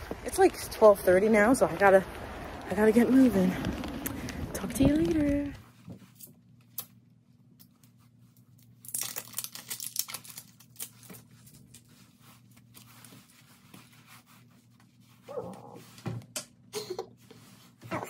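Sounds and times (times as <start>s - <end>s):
small clicks and rustles: 2.0s - 15.7s
plastic wrapping tearing and crinkling: 8.3s - 13.4s.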